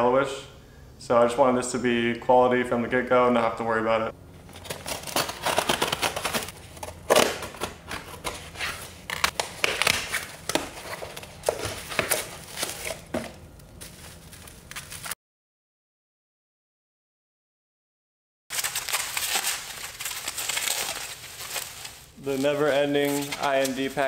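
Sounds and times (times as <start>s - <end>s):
cardboard and plastic rustling: 4.4s - 15.2s, 18.5s - 24.0s
scissors cutting tape: 4.6s - 7.7s.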